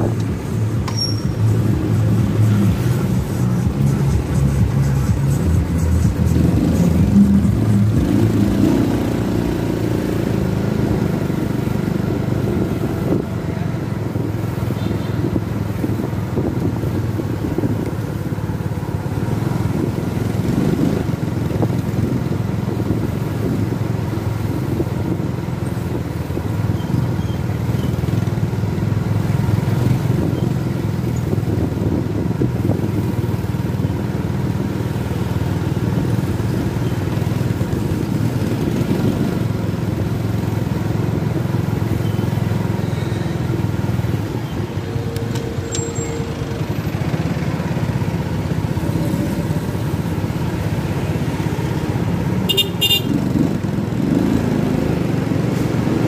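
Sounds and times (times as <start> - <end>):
wind noise on microphone: 0.0 - 9.0, 9.6 - 41.8
motorcycle engine running: 0.0 - 45.6, 46.3 - 56.0.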